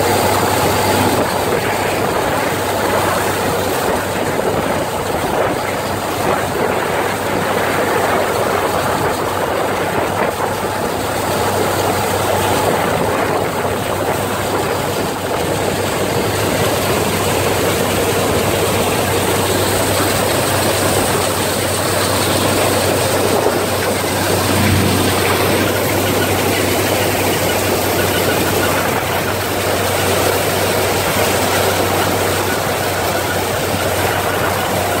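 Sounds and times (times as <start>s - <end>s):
combine harvester running: 0.0s - 35.0s
low hum: 20.6s - 30.4s.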